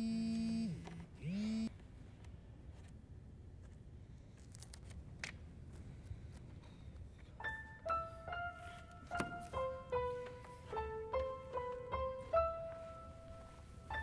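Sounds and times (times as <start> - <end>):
book pages rustling: 3.6 - 7.4
piano music: 7.4 - 14.0.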